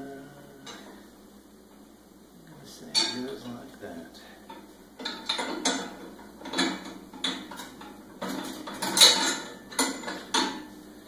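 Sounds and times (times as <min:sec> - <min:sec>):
steel parts clinking and clanking: 0:02.9 - 0:03.4, 0:04.5 - 0:10.7.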